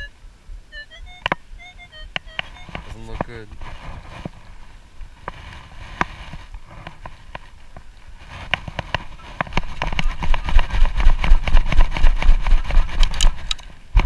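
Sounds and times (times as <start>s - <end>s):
metal scoop scraping sand: 2.8s - 7.2s.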